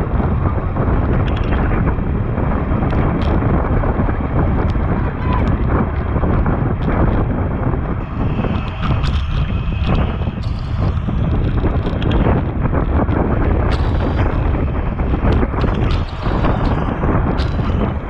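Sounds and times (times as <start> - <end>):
wind buffeting microphone: 0.0 - 18.0
scattered clicks and knocks: 1.0 - 1.9, 2.8 - 3.4, 8.0 - 18.0.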